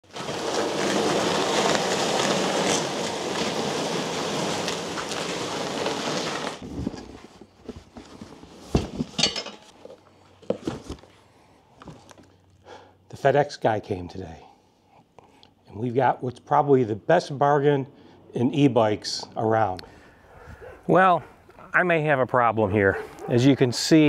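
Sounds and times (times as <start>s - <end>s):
cardboard boxes knocking and thumping: 0.1s - 11.1s.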